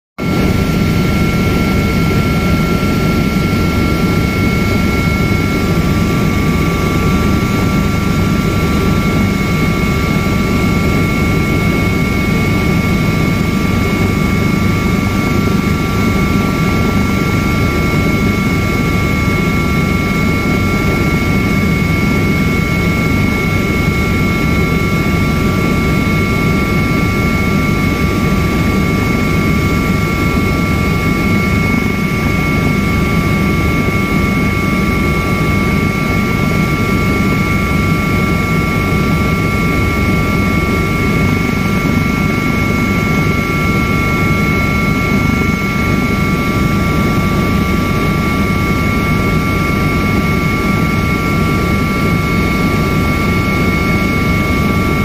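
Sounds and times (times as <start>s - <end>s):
helicopter engine and rotor roar: 0.2s - 55.0s
high whine: 0.2s - 55.0s.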